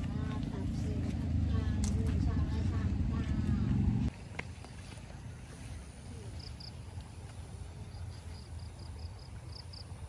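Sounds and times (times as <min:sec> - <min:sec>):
low rumble: 0:00.0 - 0:04.1.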